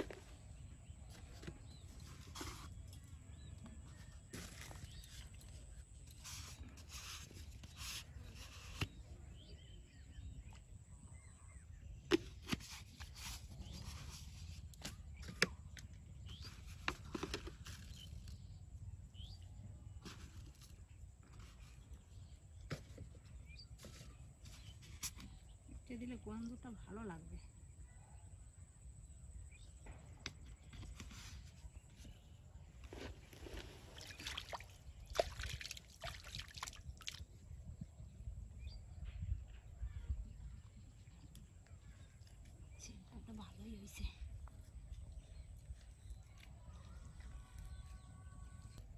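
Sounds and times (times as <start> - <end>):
water sloshing and trickling: 32.8 - 37.5
water splashes: 33.6 - 37.3.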